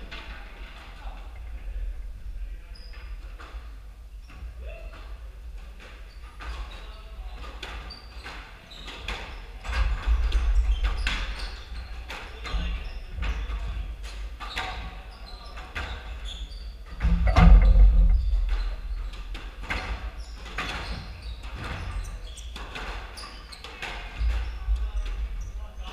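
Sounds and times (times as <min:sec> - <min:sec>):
loud thud: 0:17.1 - 0:19.0.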